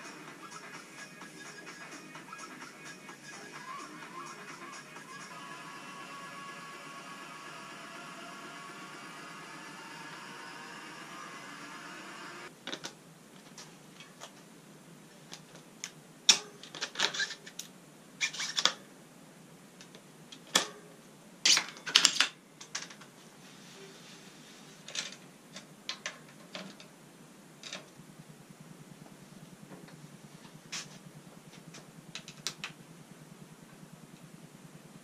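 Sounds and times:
bike parts and tools clicking: 0:24.9 - 0:26.9, 0:27.6 - 0:28.0, 0:30.7 - 0:32.8.

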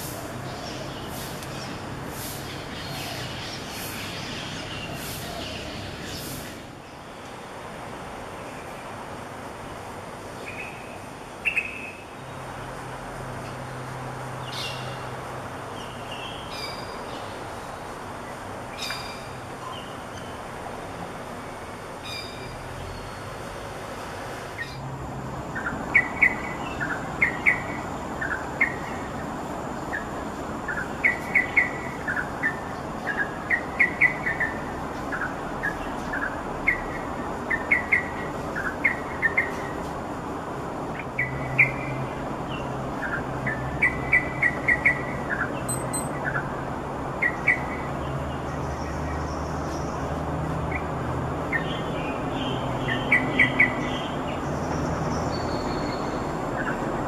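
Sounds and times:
steady background hiss: 0:00.0 - 0:47.9
short bird chirps: 0:45.7 - 0:46.2.

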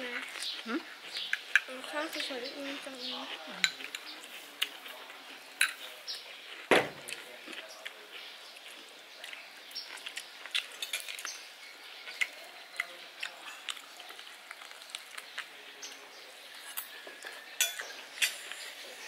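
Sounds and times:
chewing and lip smacks: 0:00.2 - 0:11.4, 0:12.0 - 0:18.8
cutlery clicking on plates: 0:10.6 - 0:11.4, 0:16.7 - 0:18.6.

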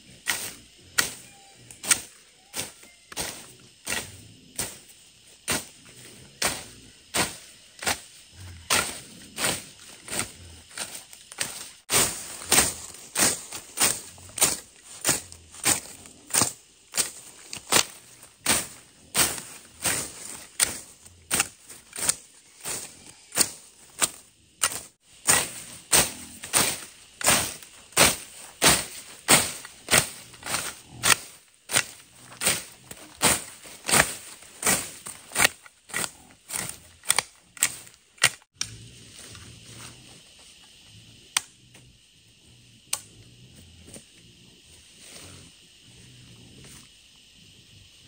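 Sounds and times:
blade slashing through weeds: 0:06.4 - 0:38.5.

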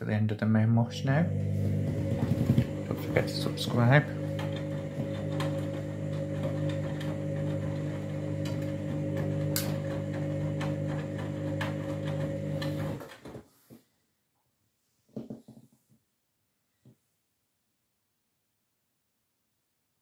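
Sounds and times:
washing machine motor humming: 0:00.6 - 0:13.3.

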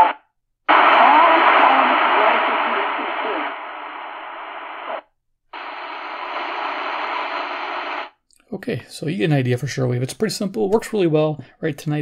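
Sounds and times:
radio static: 0:00.0 - 0:08.2
faint voice in static: 0:00.7 - 0:04.1.

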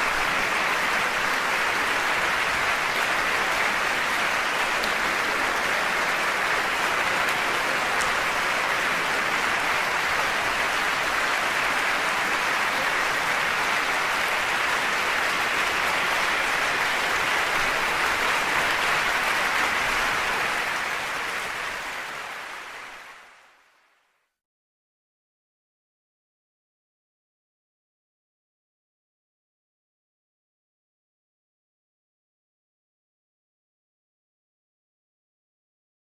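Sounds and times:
applause: 0:00.0 - 0:24.4.

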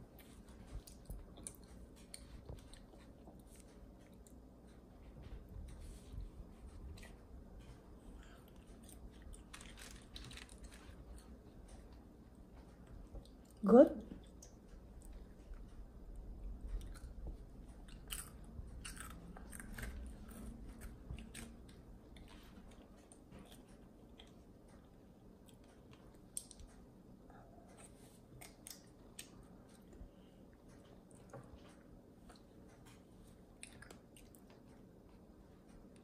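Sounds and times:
child crunching cereal: 0:08.8 - 0:11.0.

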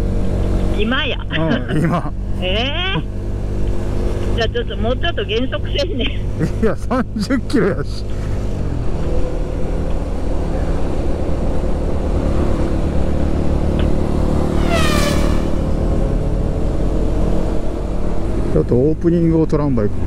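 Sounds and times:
motorcycle engine cruising: 0:00.0 - 0:20.0
high falling squeal: 0:14.4 - 0:15.8.

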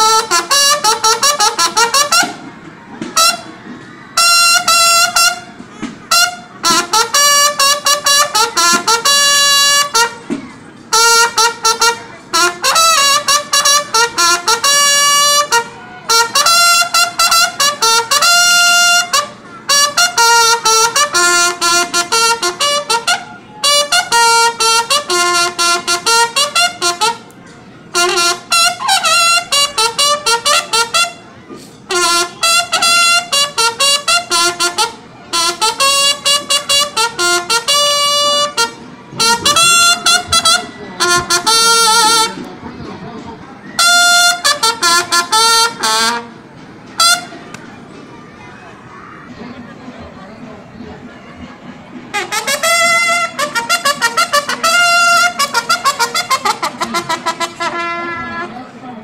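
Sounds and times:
bugle playing military calls: 0:00.0 - 0:42.5, 0:43.7 - 0:47.4, 0:52.1 - 0:58.6.

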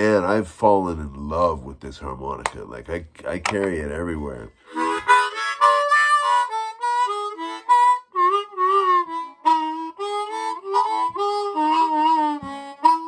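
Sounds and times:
harmonica playing: 0:04.6 - 0:13.0.

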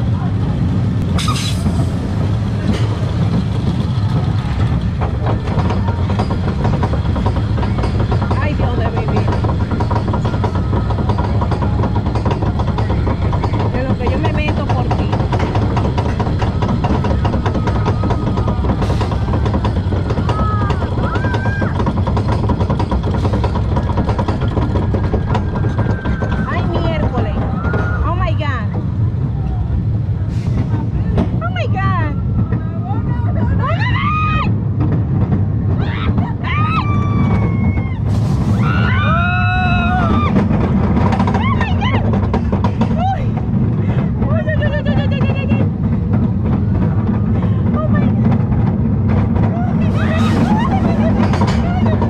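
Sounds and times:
roller coaster low rumble: 0:00.0 - 0:52.0
wheels clattering on track: 0:00.0 - 0:52.0
riders screaming: 0:35.8 - 0:40.5.

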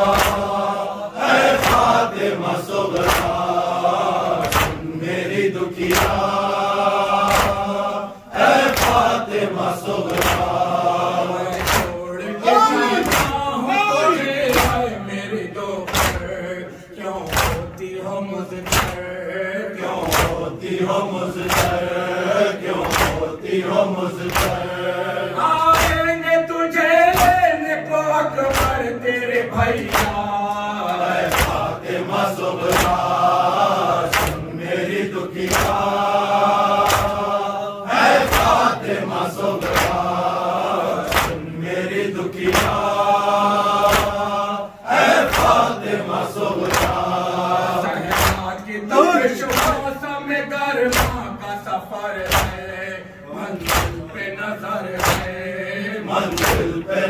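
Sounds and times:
men chanting in unison: 0:00.0 - 0:57.0
person reciting into microphone: 0:00.0 - 0:57.0
hand slaps on chest: 0:00.1 - 0:00.5, 0:01.4 - 0:02.0, 0:02.9 - 0:03.4, 0:04.4 - 0:04.8, 0:05.8 - 0:06.4, 0:07.2 - 0:07.7, 0:08.6 - 0:09.1, 0:10.0 - 0:10.6, 0:11.5 - 0:12.0, 0:13.0 - 0:13.4, 0:14.5 - 0:14.8, 0:15.9 - 0:16.3, 0:17.3 - 0:17.8, 0:18.6 - 0:19.0, 0:20.0 - 0:20.4, 0:21.4 - 0:21.8, 0:22.8 - 0:23.3, 0:24.2 - 0:24.6, 0:25.7 - 0:26.0, 0:27.1 - 0:27.5, 0:28.5 - 0:28.8, 0:29.8 - 0:30.2, 0:31.2 - 0:31.7, 0:32.6 - 0:33.1, 0:34.1 - 0:34.4, 0:35.4 - 0:36.0, 0:36.8 - 0:37.3, 0:38.2 - 0:38.6, 0:39.6 - 0:40.1, 0:41.0 - 0:41.4, 0:42.4 - 0:42.9, 0:43.8 - 0:44.2, 0:45.0 - 0:45.7, 0:46.6 - 0:47.0, 0:48.1 - 0:48.5, 0:49.5 - 0:49.8, 0:50.9 - 0:51.2, 0:52.2 - 0:52.6, 0:53.6 - 0:54.2, 0:55.0 - 0:55.4, 0:56.3 - 0:56.8.

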